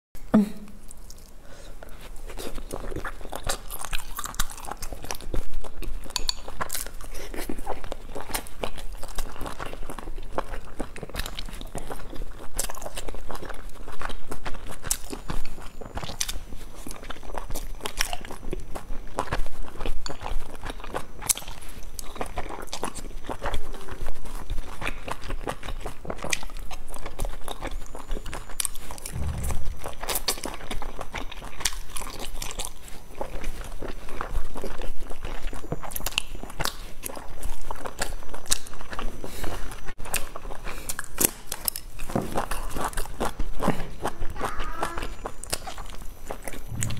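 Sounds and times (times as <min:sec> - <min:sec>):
wet chewing and smacking: 0:00.9 - 0:46.9
low bump: 0:29.1 - 0:30.5, 0:46.6 - 0:46.9.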